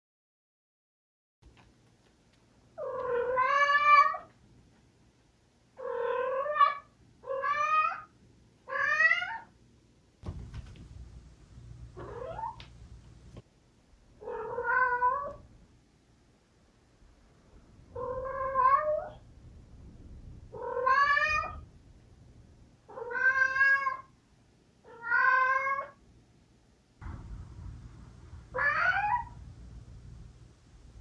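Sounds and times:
quiet scuffling: 1.4 - 3.4, 10.2 - 13.5
cat meowing: 2.8 - 4.3, 5.8 - 8.1, 8.7 - 9.5, 14.2 - 15.4, 18.0 - 19.2, 20.6 - 21.6, 22.9 - 24.1, 24.9 - 26.0.

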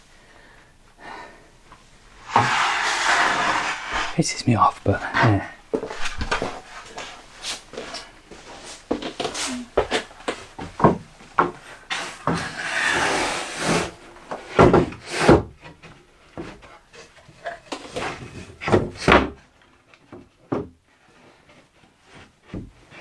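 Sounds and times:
wooden board scraping: 2.1 - 4.4, 11.9 - 15.4
wooden knocks and bumps: 9.8 - 11.6, 20.0 - 20.8, 22.4 - 22.8.

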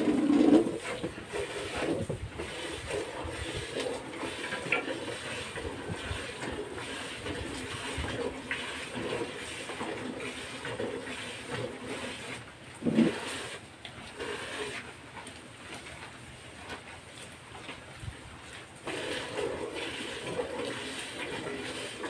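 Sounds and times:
milk squirting into metal pail: 0.0 - 13.6, 18.8 - 22.0.

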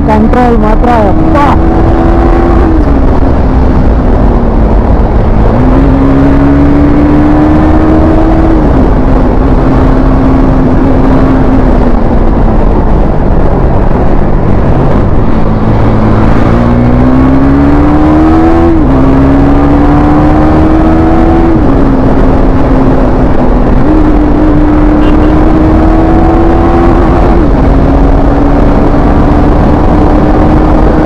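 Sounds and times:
heavy wind noise: 0.0 - 31.0
motorcycle engine running: 18.6 - 31.0.

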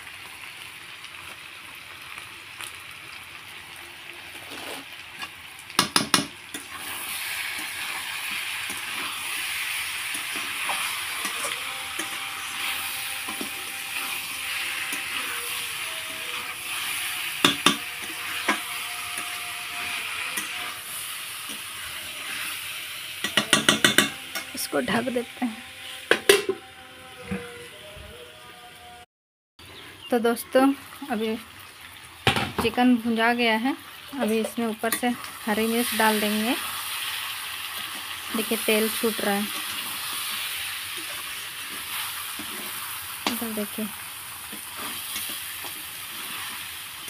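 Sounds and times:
chicken sizzling in hot oil: 0.0 - 26.5, 30.1 - 47.0
spoon knocking against pan: 5.8 - 6.4, 17.4 - 18.7, 23.2 - 24.5.

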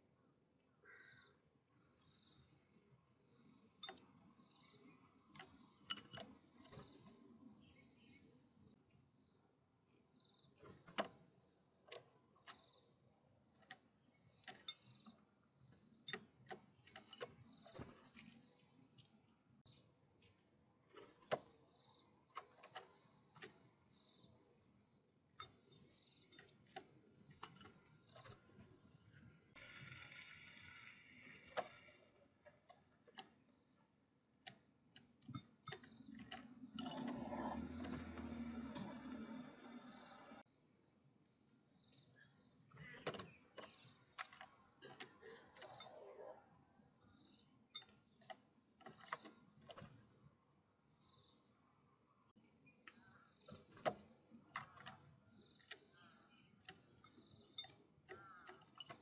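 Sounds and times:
bird pecking at glass bowls: 3.8 - 7.1, 14.4 - 15.2, 16.0 - 19.1, 25.4 - 28.8, 34.5 - 39.2, 56.6 - 59.0
woodpecker pecking on wood: 52.8 - 59.0.

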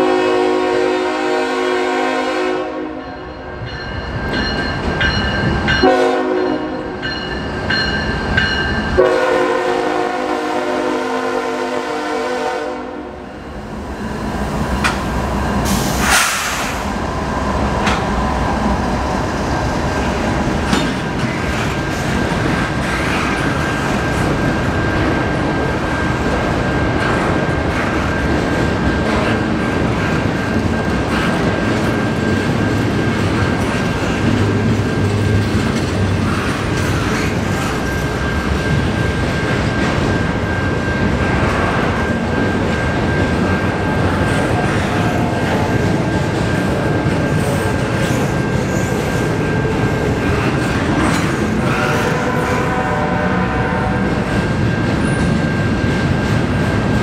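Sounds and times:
locomotive horn blast: 0.0 - 3.1, 5.8 - 6.9, 9.0 - 13.2, 51.6 - 54.3
train rumble and wheel clatter: 0.0 - 57.0.

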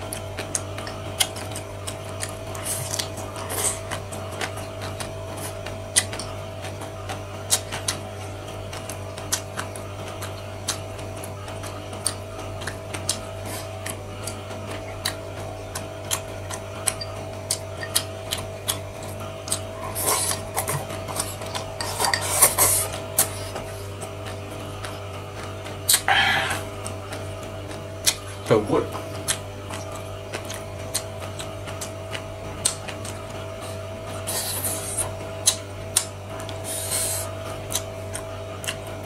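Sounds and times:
wet chewing and lip smacks: 0.0 - 38.9
steady low hum: 0.0 - 39.0
noodle slurping: 19.0 - 23.8, 33.7 - 35.2, 36.6 - 37.8.

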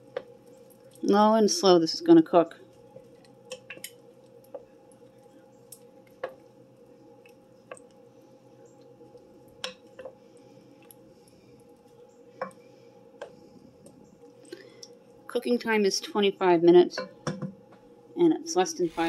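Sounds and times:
faint steady hum: 0.0 - 19.0
spoon stirring thick mixture: 2.6 - 14.4.

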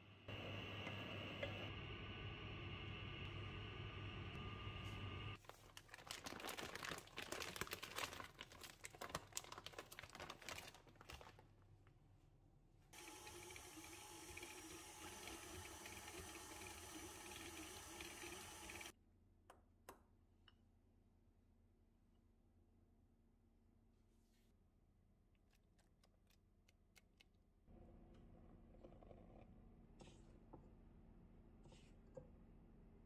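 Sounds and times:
bag crinkling and rustling: 5.4 - 11.5
stand mixer running: 13.0 - 18.9.

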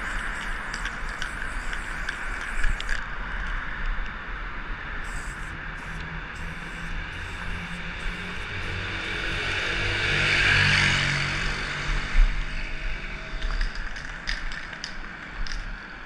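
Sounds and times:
marker scratching on concrete: 0.0 - 3.0, 5.0 - 9.8
road traffic rumble: 0.0 - 16.0.

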